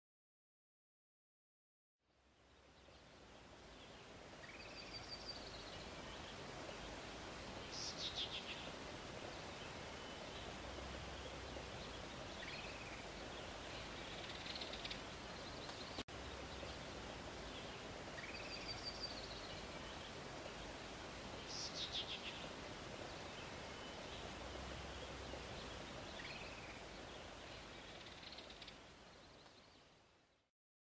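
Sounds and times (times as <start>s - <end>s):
steady high hiss: 2.0s - 30.5s.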